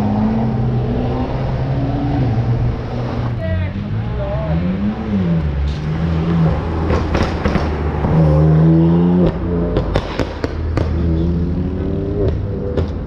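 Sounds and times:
car engine revving past: 4.4s - 12.7s.

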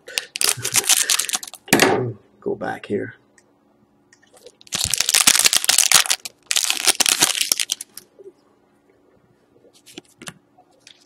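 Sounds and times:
foil wrapper crackling: 0.1s - 1.6s, 4.5s - 8.0s.

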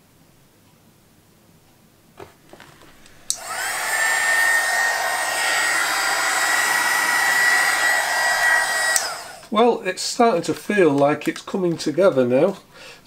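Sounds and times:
heat gun fan blowing with whine: 2.4s - 10.4s
heat gun switch click: 3.0s - 9.5s.

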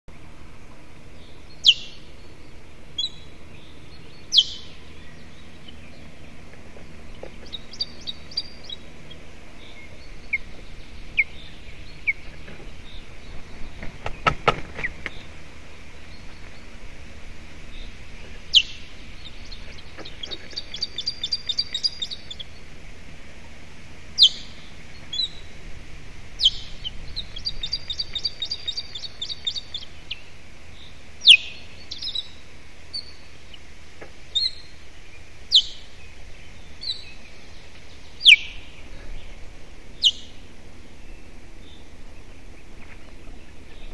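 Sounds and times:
bird alarm calls: 1.5s - 2.1s, 2.9s - 15.4s, 17.7s - 22.8s, 24.2s - 25.5s, 26.4s - 33.6s, 34.3s - 34.8s, 35.5s - 36.0s, 36.6s - 40.4s
rustling and knocking on nest: 13.7s - 15.2s.

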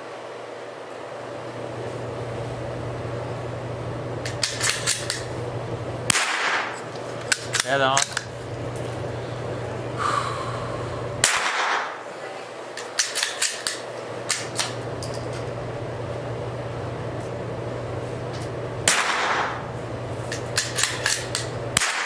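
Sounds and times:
steady low hum: 0.0s - 22.0s
rifle shots with echo: 6.1s - 6.8s, 11.2s - 12.0s, 18.9s - 19.6s, 21.8s - 22.0s.

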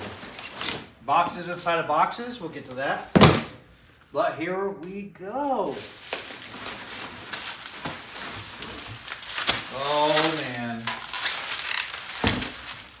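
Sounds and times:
bubble wrap and paper crinkling: 0.0s - 1.0s, 5.4s - 13.0s.

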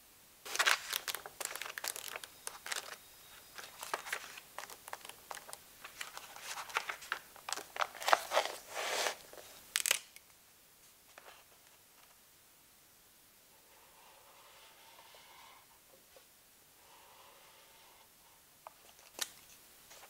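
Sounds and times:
book pages flipping: 0.5s - 10.0s.

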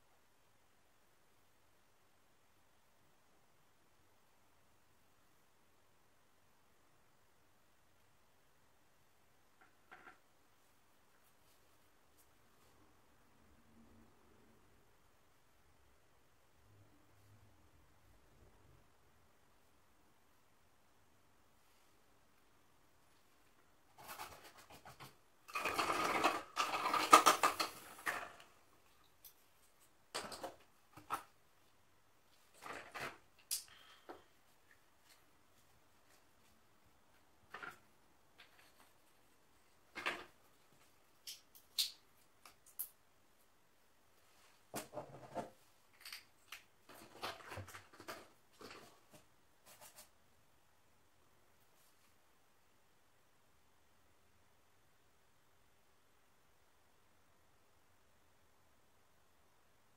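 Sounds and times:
small objects rustling and clicking: 23.9s - 31.4s.

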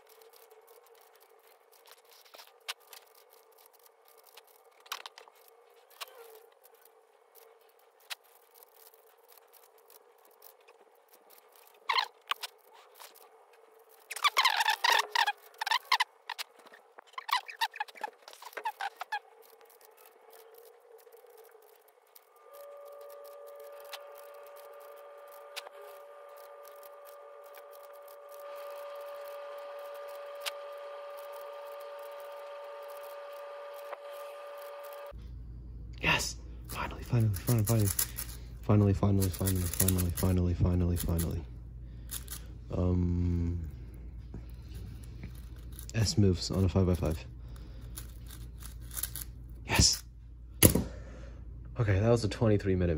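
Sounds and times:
squeaky plastic scrape: 0.0s - 35.2s, 36.7s - 41.4s
steady high hum: 0.0s - 52.9s
puzzle cube clicking: 36.8s - 41.3s.

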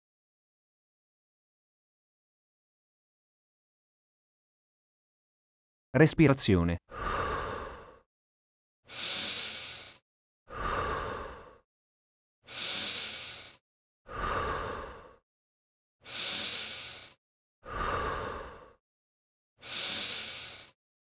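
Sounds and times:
man breathing audibly: 6.9s - 8.1s, 8.9s - 11.7s, 12.4s - 15.3s, 16.0s - 18.8s, 19.6s - 20.8s.

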